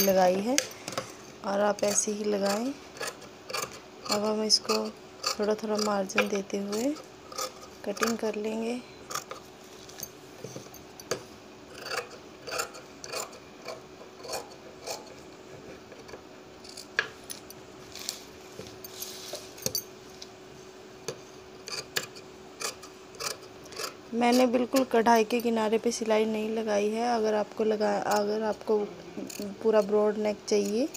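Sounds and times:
scissors snipping fabric: 1.8 - 8.3, 29.2 - 30.9
cloth rubbing and rustling: 17.8 - 19.6.

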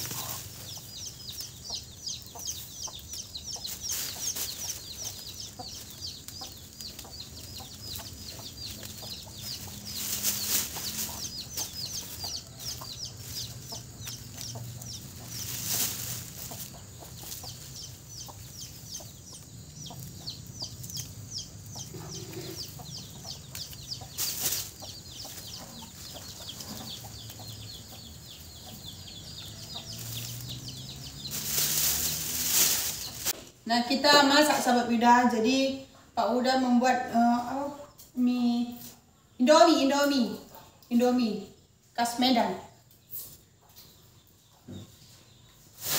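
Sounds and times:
plastic sack rustling: 0.0 - 0.9, 3.3 - 17.8, 24.1 - 26.7, 29.9 - 33.4
rapid high chirping: 0.0 - 33.4
chickens clucking: 0.0 - 34.8.

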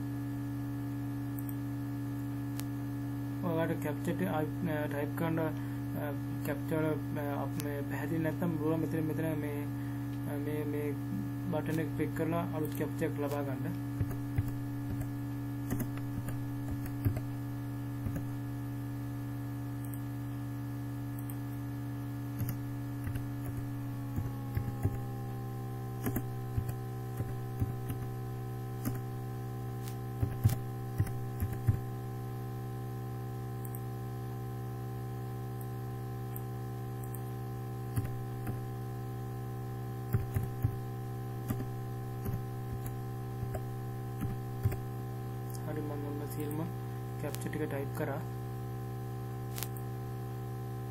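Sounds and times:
steady electrical hum: 0.0 - 50.9
mouse clicks: 1.4 - 1.6, 21.2 - 21.6, 36.3 - 37.3
keyboard typing: 12.6 - 17.3, 18.0 - 18.3, 22.4 - 25.1, 26.0 - 28.2, 28.8 - 29.0, 30.2 - 31.8, 37.9 - 38.6, 40.1 - 40.8, 41.4 - 44.8.

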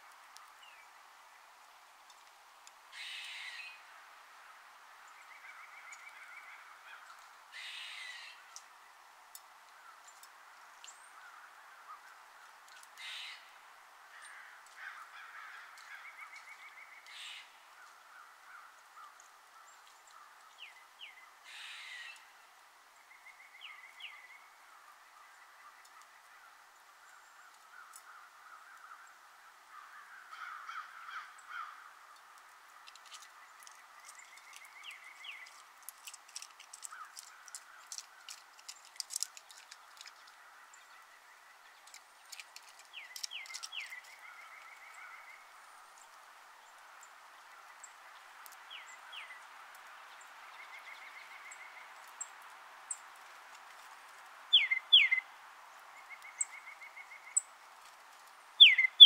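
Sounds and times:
harsh caw-like bird call: 2.9 - 3.8, 6.5 - 8.4, 13.0 - 13.5, 21.5 - 22.2, 29.7 - 32.0
small birds chattering: 30.2 - 46.1, 54.5 - 55.2, 58.6 - 59.0
short rapid bird trills: 58.6 - 59.0.

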